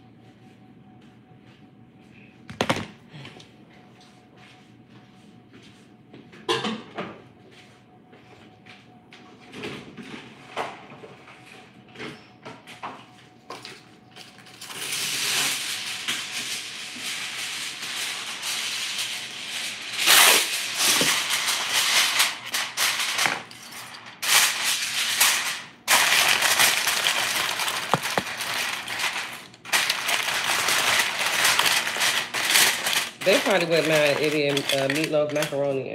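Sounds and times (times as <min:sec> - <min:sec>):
aluminium foil crinkling: 0:14.2 - 0:35.9.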